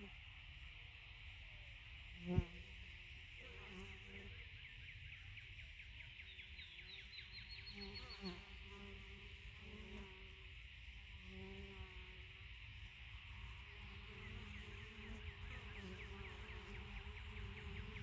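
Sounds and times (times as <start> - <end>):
insects chirring: 0.0 - 18.0
honeybees buzzing: 7.6 - 18.0.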